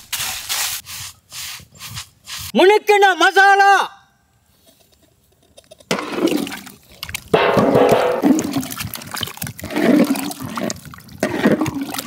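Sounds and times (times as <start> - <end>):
thick curry sloshing and gurgling: 6.2 - 12.0.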